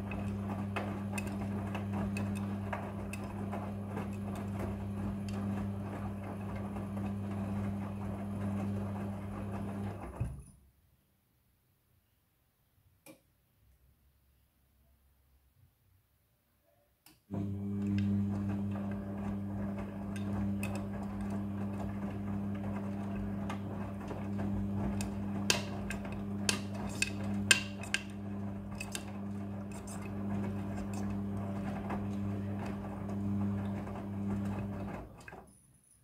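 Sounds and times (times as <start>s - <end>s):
washing machine motor hum: 0.0s - 10.5s, 17.3s - 35.5s.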